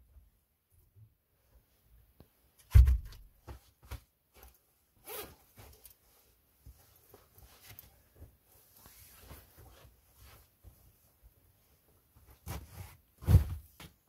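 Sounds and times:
jacket rustling: 3.4s - 13.6s
zipper pulled open: 5.0s - 5.4s.

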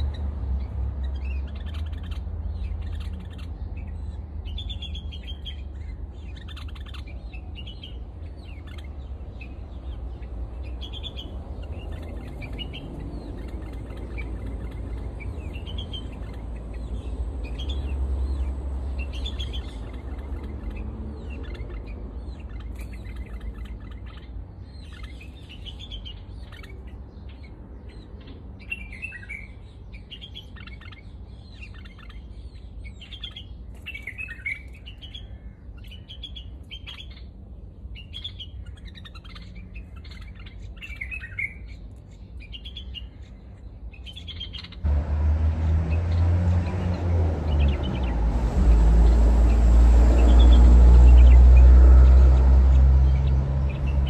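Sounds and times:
small birds chirping: 0.0s - 54.0s
loud low rumble: 44.8s - 54.0s.

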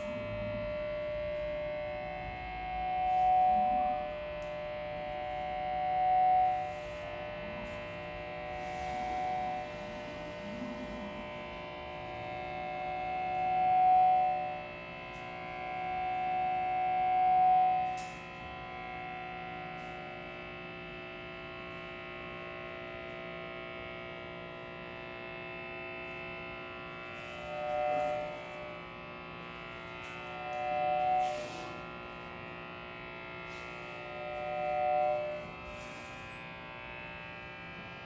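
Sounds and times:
higher electronic tone: 0.0s - 20.2s, 26.9s - 28.8s, 29.5s - 37.0s
dense electronic drone: 0.0s - 38.0s.

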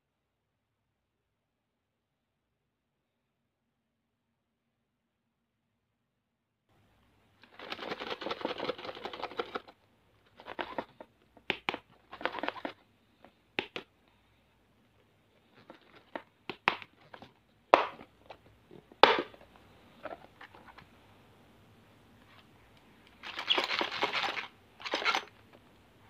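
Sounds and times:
plastic box rustling and scraping: 7.4s - 13.4s, 15.4s - 21.0s, 23.1s - 25.7s
sharp plastic clicks: 7.4s - 13.9s.

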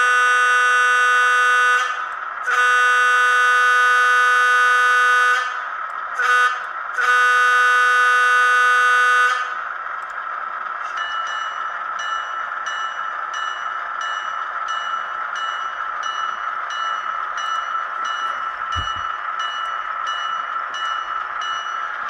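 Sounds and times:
train air horn blasts: 0.0s - 9.6s
diesel engine sound: 0.0s - 22.0s.

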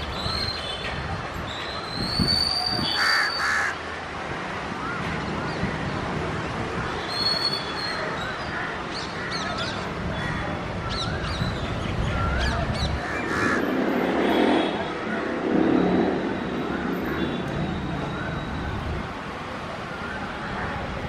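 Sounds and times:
open-air background noise: 0.0s - 21.0s
crows cawing: 3.0s - 3.8s, 13.0s - 13.6s.

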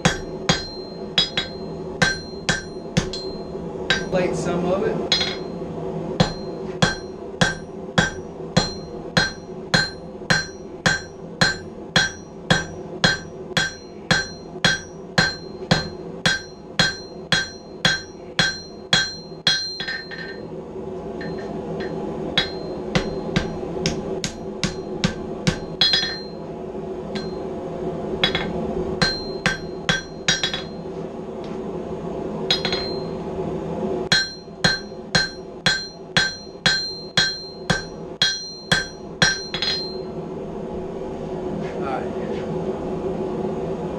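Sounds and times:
hammer ringing on anvil: 0.0s - 4.4s, 5.1s - 5.6s, 6.2s - 20.5s, 21.2s - 26.4s, 27.1s - 27.5s, 28.2s - 30.8s, 32.5s - 33.2s, 34.1s - 40.1s
low rushing noise: 20.1s - 34.2s, 39.8s - 43.9s.

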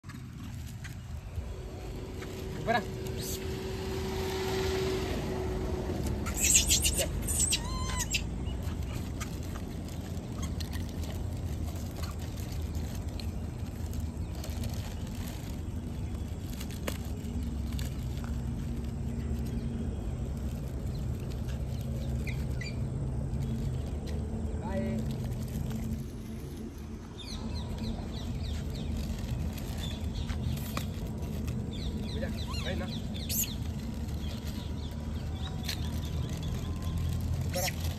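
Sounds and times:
low rumble: 0.0s - 37.9s
faint ticks and rustles: 5.8s - 37.9s
high falling chirps: 6.2s - 8.4s
monkey call: 6.2s - 9.4s.

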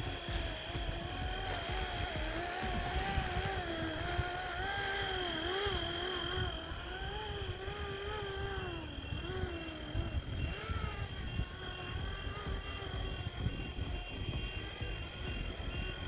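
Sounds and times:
rc helicopter motor and rotor whine: 0.0s - 16.0s
wind rumble on microphone: 0.0s - 16.0s.

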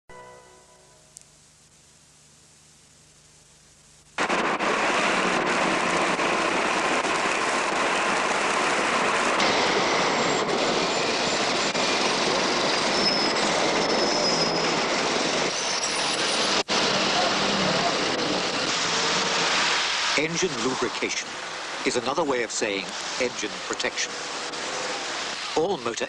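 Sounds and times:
dense street traffic rush: 4.2s - 26.0s
faint high squeals: 10.8s - 14.8s, 15.5s - 16.5s.

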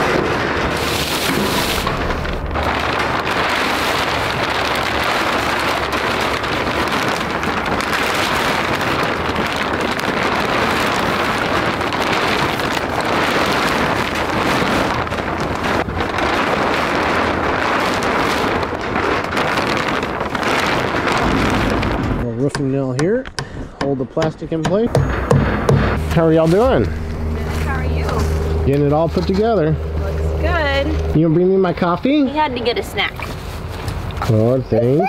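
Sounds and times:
plastic sheeting crackling and flapping: 0.0s - 23.2s, 24.8s - 35.0s.

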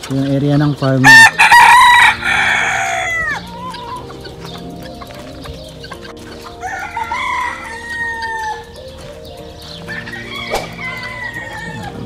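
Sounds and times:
rooster crowing: 1.0s - 4.1s, 6.6s - 8.8s, 9.9s - 12.0s.

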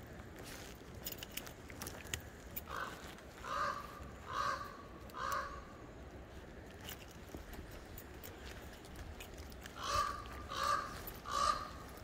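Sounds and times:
raven calling: 2.6s - 6.0s, 9.6s - 12.0s.

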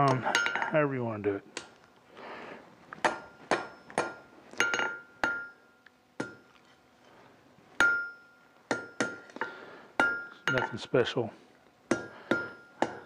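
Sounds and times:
hammer striking steel on anvil: 3.0s - 6.5s, 7.8s - 9.4s, 10.0s - 11.0s, 11.9s - 13.0s
anvil ringing: 3.1s - 6.4s, 7.8s - 9.2s, 10.0s - 11.2s, 11.9s - 13.0s.

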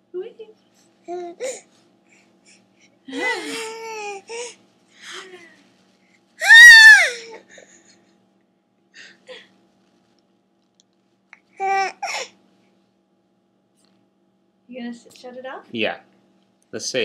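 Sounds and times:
baby squealing: 6.4s - 7.3s.

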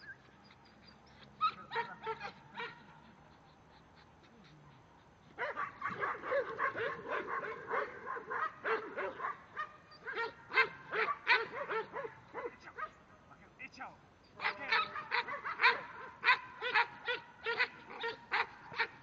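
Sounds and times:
dog barking rapidly: 5.4s - 13.0s, 14.4s - 19.0s.

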